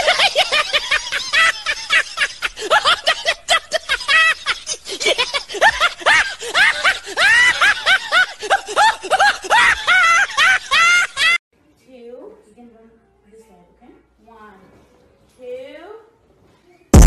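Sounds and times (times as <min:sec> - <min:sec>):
person laughing uncontrollably: 0:00.0 - 0:11.4.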